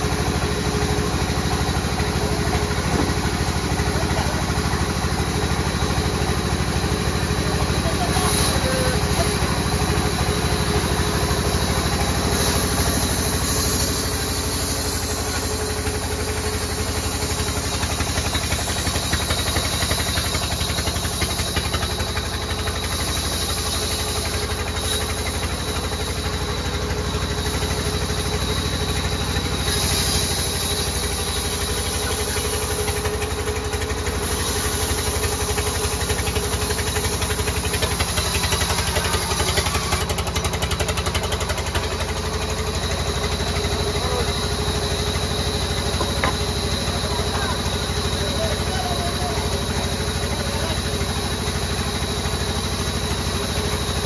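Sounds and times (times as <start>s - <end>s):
sawmill low drone: 0.0s - 54.0s.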